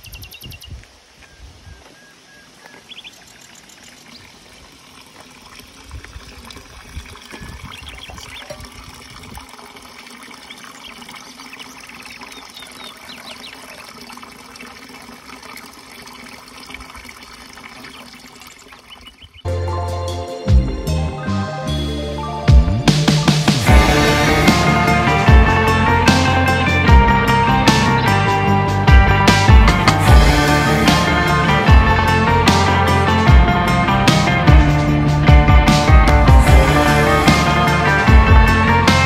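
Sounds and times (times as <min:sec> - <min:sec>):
small birds chirping: 0:00.0 - 0:04.4, 0:07.3 - 0:08.6, 0:10.4 - 0:13.8, 0:17.8 - 0:19.5
water trickling into trough: 0:03.2 - 0:19.5.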